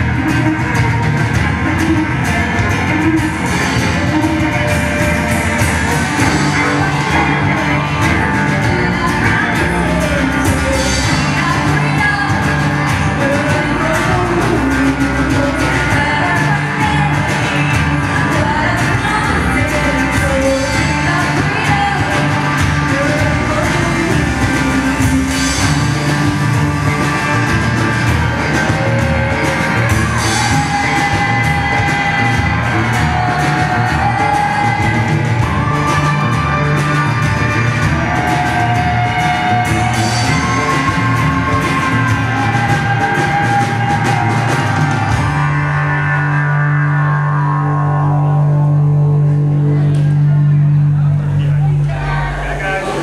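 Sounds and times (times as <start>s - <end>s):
live band playing: 0.0s - 53.0s
woman singing: 0.1s - 27.4s, 28.0s - 36.6s.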